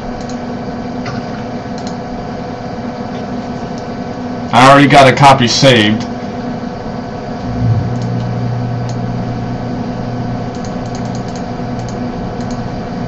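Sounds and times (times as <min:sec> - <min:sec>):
steady electrical hum: 0:00.0 - 0:13.0
computer mouse clicks: 0:00.2 - 0:00.4, 0:01.8 - 0:02.0, 0:10.5 - 0:12.6.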